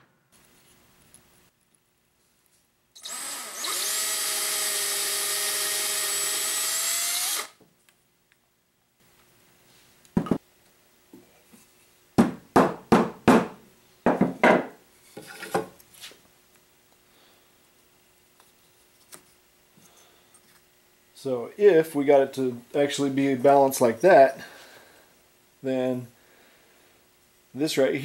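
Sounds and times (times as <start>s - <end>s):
cordless drill boring wood: 3.0s - 7.6s.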